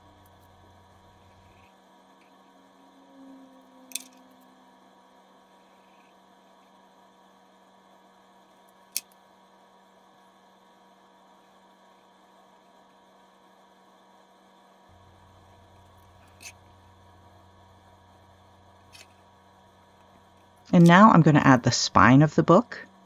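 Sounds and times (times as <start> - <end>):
deeper hum: 0.0 - 6.0, 14.9 - 23.0
faint electrical hum: 0.0 - 23.0.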